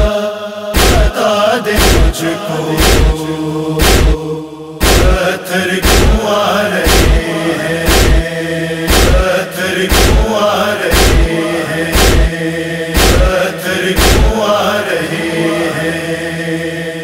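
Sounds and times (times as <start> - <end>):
chorus humming a mourning chant: 0.0 - 17.0
loud chest-beating thuds: 0.8 - 1.1, 1.8 - 2.2, 2.8 - 3.2, 3.8 - 4.2, 4.8 - 5.2, 5.8 - 6.2, 6.8 - 7.2, 7.9 - 8.3, 8.9 - 9.3, 9.9 - 10.2, 10.9 - 11.3, 11.9 - 12.4, 13.0 - 13.4, 14.0 - 14.3.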